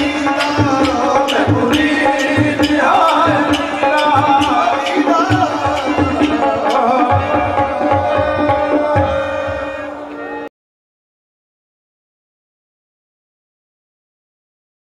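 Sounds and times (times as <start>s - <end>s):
person singing: 0.0s - 10.5s
tabla drumming: 0.0s - 10.5s.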